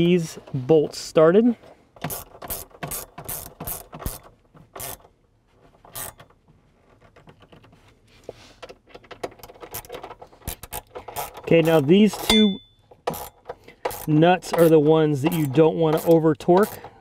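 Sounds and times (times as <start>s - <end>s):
ratchet wrench clicking: 2.0s - 4.2s, 4.8s - 5.0s, 6.0s - 6.2s, 9.7s - 11.5s, 13.0s - 16.9s.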